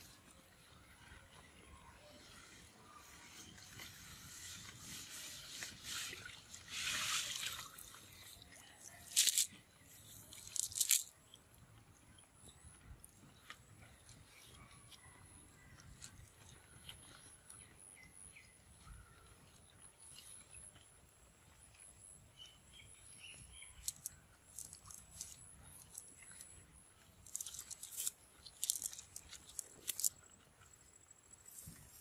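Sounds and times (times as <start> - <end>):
net rustling and crackling: 6.9 - 9.6, 10.2 - 11.1, 23.8 - 26.1, 27.2 - 30.3.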